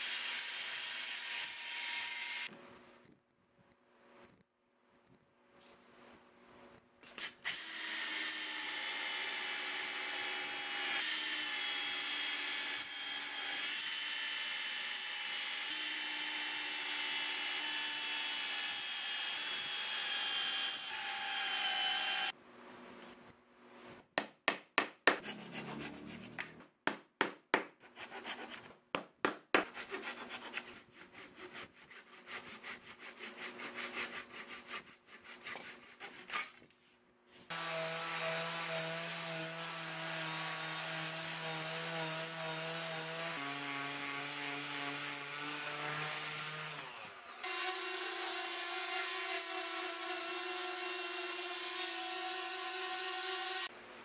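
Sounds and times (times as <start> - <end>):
hand blade scraping wood: 25.1 - 26.6, 27.8 - 28.7, 29.6 - 36.7.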